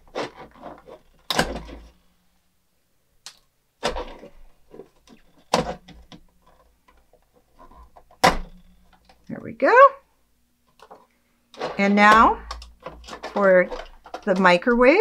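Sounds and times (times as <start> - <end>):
plastic toy parts knocking: 11.6 - 15.0.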